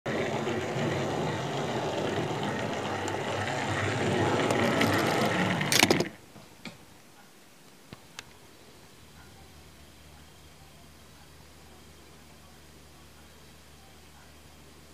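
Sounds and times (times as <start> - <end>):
loud clatter: 0.0 - 6.2
model train motor whirring: 0.1 - 6.2.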